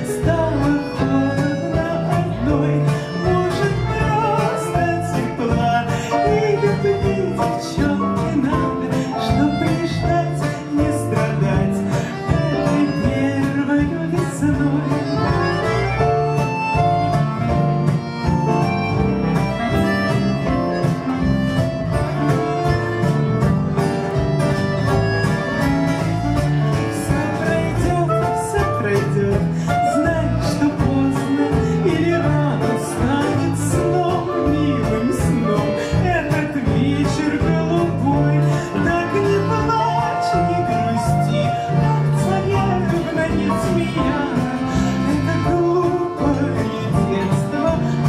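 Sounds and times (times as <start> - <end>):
acoustic guitar: 0.0 - 48.0
bass line: 0.0 - 48.0
button accordion: 0.0 - 48.0
drums: 0.0 - 48.0
piano: 0.0 - 48.0
clarinet: 11.9 - 29.0.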